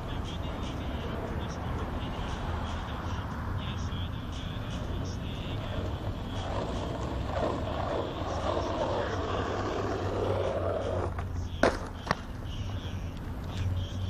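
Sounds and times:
skateboard wheels rolling on concrete: 0.0s - 14.0s
skateboard landing clack: 11.0s - 12.4s.

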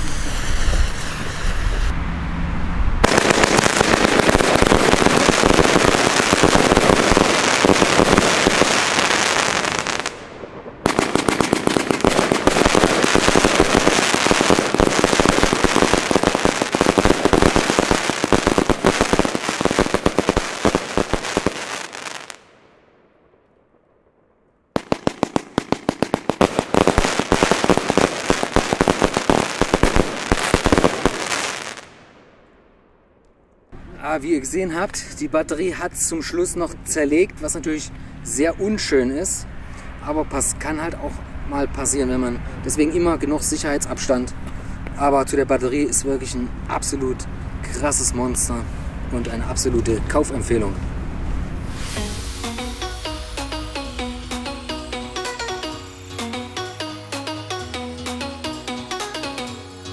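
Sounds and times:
fireworks firing and crackling: 0.0s - 1.9s, 3.0s - 22.6s, 24.8s - 32.3s.

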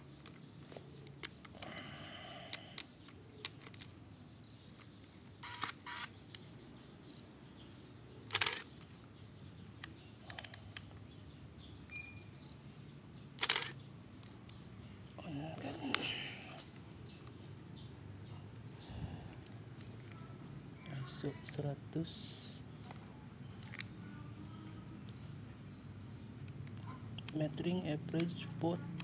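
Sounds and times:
camera shutter and film winding: 5.4s - 6.1s, 8.3s - 8.8s, 13.4s - 13.8s
camera dial and button clicks: 8.3s - 8.8s, 13.4s - 13.8s.

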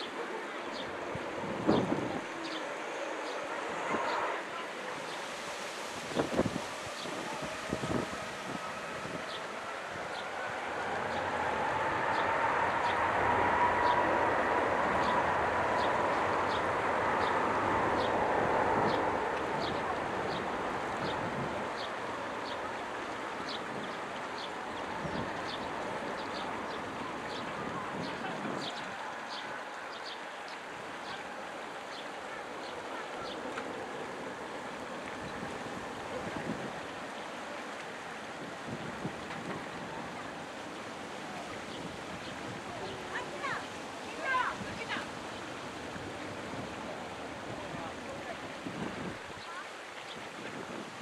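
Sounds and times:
jet engines roaring: 6.2s - 28.4s.

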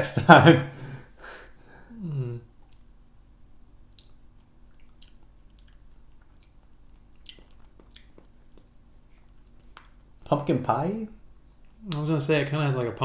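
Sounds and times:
lip smacks and tongue clicks: 2.6s - 3.0s, 3.8s - 10.1s.

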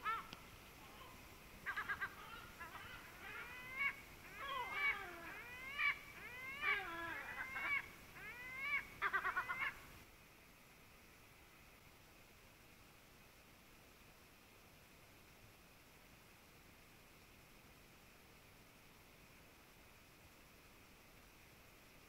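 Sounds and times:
gull calling: 0.0s - 10.0s.

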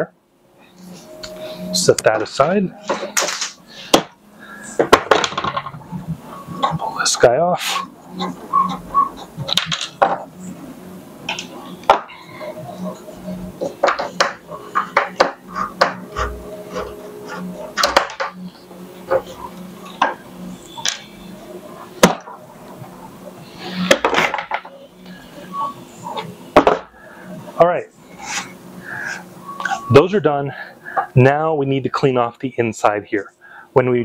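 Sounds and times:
clicks and rubbing: 11.3s - 18.4s.

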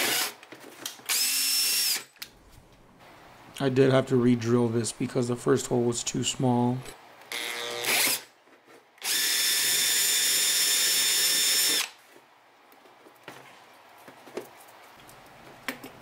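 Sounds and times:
power drill whining: 0.0s - 0.4s, 1.0s - 2.1s, 7.3s - 8.3s, 9.0s - 12.0s.

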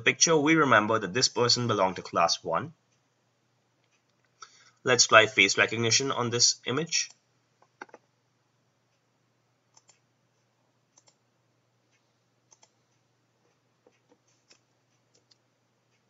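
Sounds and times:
faint steady hum: 0.0s - 16.0s
computer mouse clicks: 7.1s - 8.1s, 9.7s - 10.1s, 10.9s - 11.2s, 11.9s - 16.0s.

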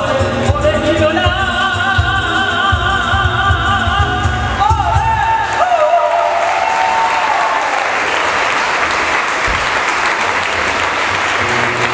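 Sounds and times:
audience applauding: 5.7s - 11.9s.

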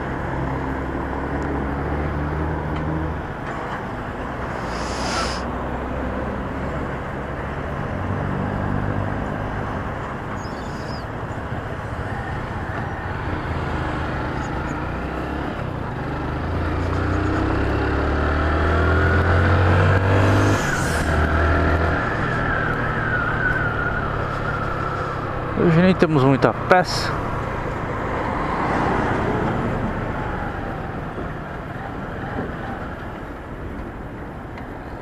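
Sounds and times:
wind and road noise: 0.0s - 35.0s
motorcycle engine accelerating: 12.5s - 22.2s.

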